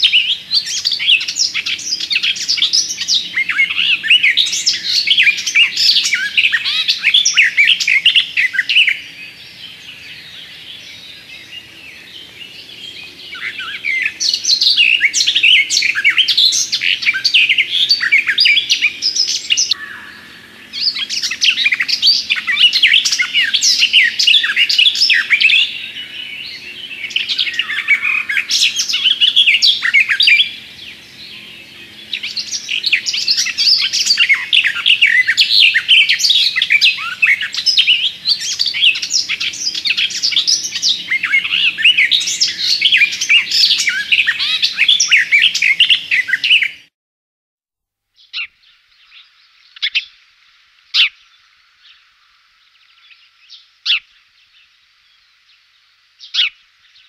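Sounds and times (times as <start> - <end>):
warbler singing: 0.0 - 46.9, 48.2 - 50.3, 50.9 - 57.0.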